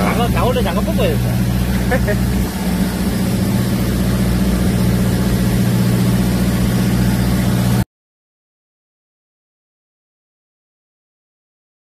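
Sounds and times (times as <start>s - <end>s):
boat engine running: 0.0s - 7.8s.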